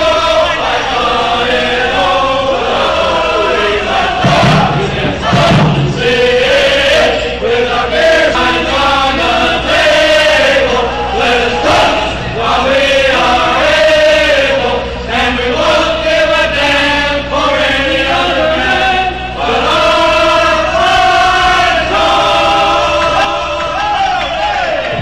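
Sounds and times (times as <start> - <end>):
men singing in chorus: 0.0 - 25.0.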